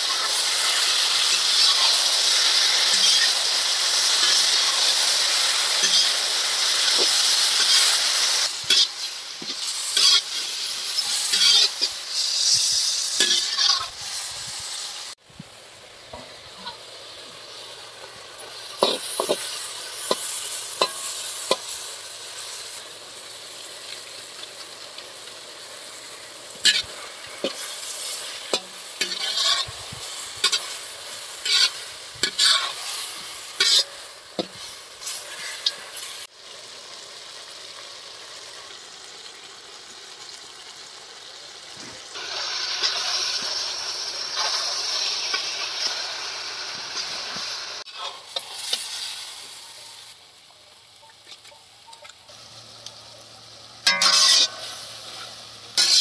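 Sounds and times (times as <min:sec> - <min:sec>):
food sizzling in a pan: 0:00.0 - 0:56.0
utensil scraping a pan: 0:02.9 - 0:03.4, 0:05.8 - 0:06.2, 0:06.9 - 0:14.0, 0:26.6 - 0:30.8, 0:31.4 - 0:33.0, 0:33.6 - 0:35.8, 0:53.9 - 0:54.8, 0:55.8 - 0:56.0.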